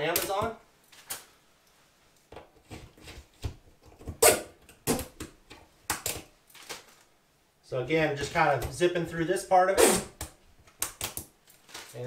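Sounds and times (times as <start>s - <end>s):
plastic clicks and snaps: 10.2s - 12.0s.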